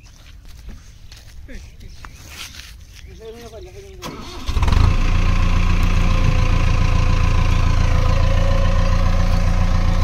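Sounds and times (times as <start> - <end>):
tractor diesel engine idling: 4.0 - 10.0.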